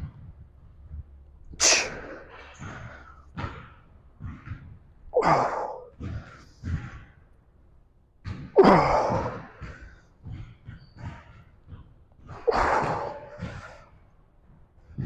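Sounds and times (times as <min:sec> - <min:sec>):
man grunting with effort: 0:05.2 - 0:05.9, 0:08.6 - 0:09.5, 0:12.4 - 0:13.5.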